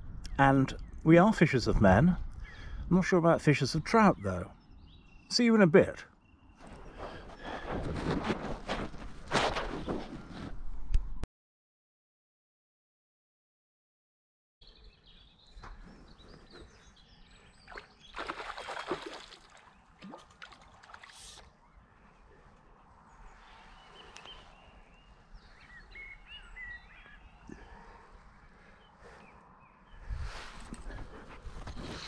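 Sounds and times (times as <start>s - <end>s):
small birds chirping: 0.0s - 7.9s, 14.6s - 32.0s.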